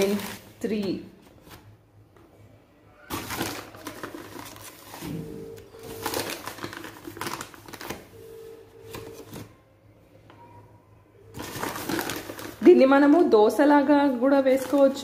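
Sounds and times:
plastic bag rustling: 0.0s - 1.7s, 3.1s - 8.1s, 11.3s - 15.0s.

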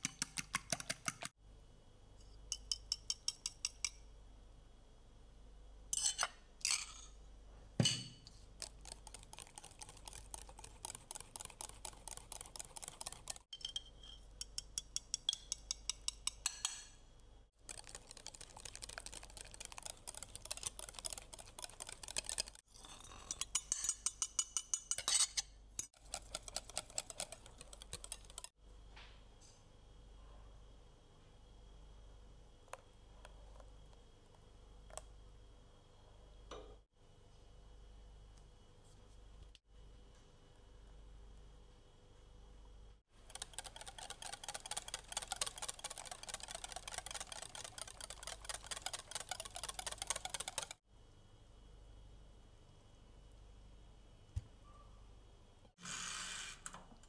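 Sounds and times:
utensil clicking against mixing bowl: 8.6s - 13.4s, 14.4s - 16.8s, 17.7s - 22.6s, 25.8s - 28.5s, 43.3s - 50.8s.

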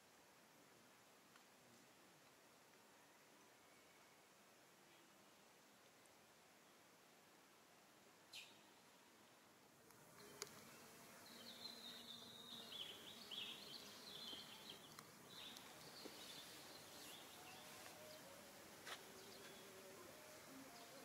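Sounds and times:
small birds twittering: 8.3s - 8.8s, 10.1s - 21.0s.

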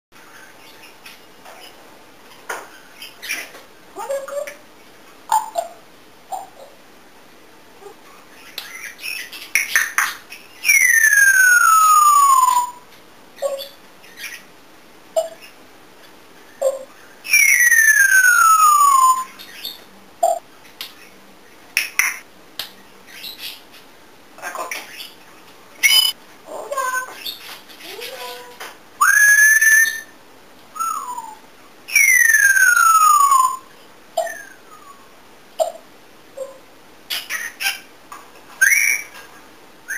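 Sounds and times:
parrot whistling: 10.6s - 12.8s, 16.6s - 19.4s, 25.8s - 26.2s, 29.0s - 30.1s, 30.8s - 35.0s, 38.6s - 39.1s.

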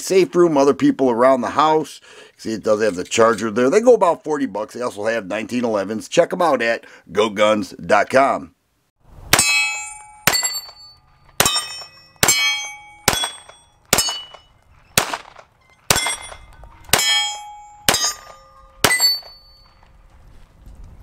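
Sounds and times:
steel plate target ringing: 9.3s - 19.8s
pistol shots: 11.4s - 19.3s.

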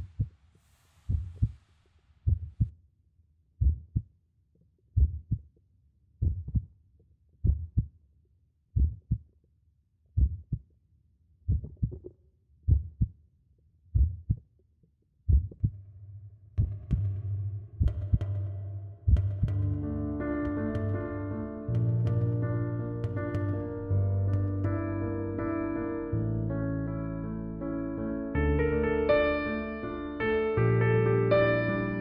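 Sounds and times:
slow heartbeat: 0.0s - 0.3s, 1.0s - 2.7s, 3.6s - 4.1s, 5.0s - 5.5s, 6.2s - 6.7s, 7.4s - 7.9s, 8.8s - 9.3s, 10.2s - 10.7s, 11.5s - 12.1s, 12.7s - 13.1s, 14.0s - 14.4s, 15.3s - 15.8s, 16.6s - 19.8s.

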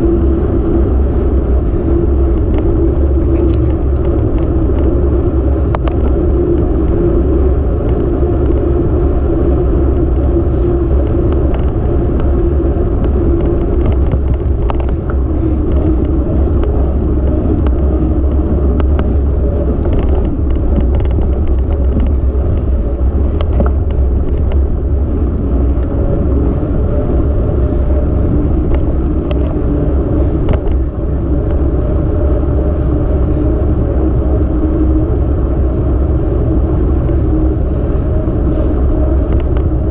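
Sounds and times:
road and wind rumble: 0.0s - 39.9s.

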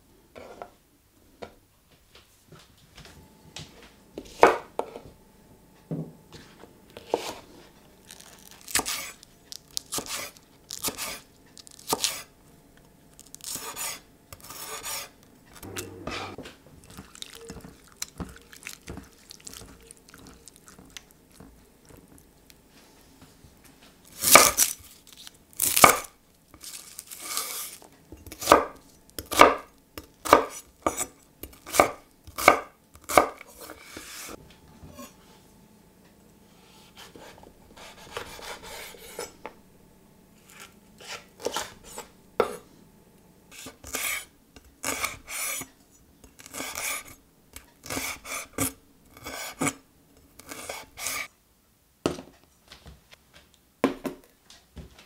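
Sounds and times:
knife cutting on wooden board: 36.9s - 39.3s, 43.6s - 45.7s.

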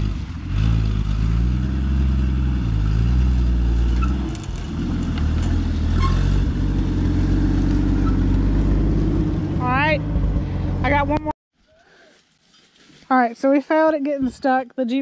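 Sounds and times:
engine pulling under load: 0.0s - 11.2s.

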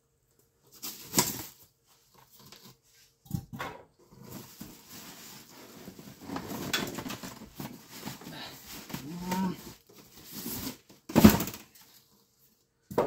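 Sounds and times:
low moaning voice: 8.3s - 9.8s.

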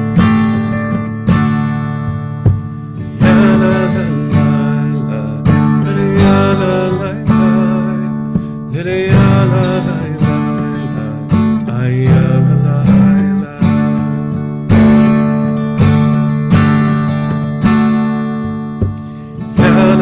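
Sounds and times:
acoustic guitar strumming: 0.0s - 20.0s
man singing: 3.0s - 15.3s, 18.9s - 20.0s.

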